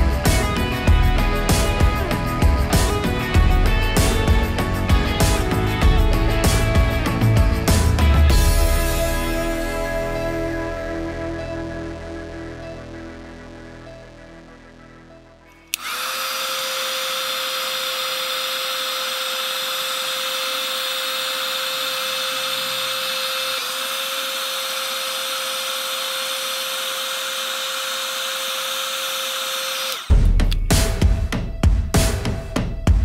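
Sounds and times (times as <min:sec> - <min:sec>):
music: 0:00.0 - 0:15.9, 0:29.9 - 0:33.0
heat gun blowing air: 0:15.7 - 0:30.6.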